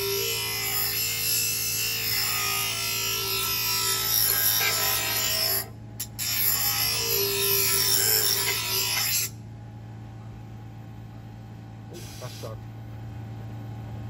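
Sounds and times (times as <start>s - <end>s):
blade grinding on grinder wheel: 0.0s - 9.3s
grinder motor hum: 0.0s - 9.3s.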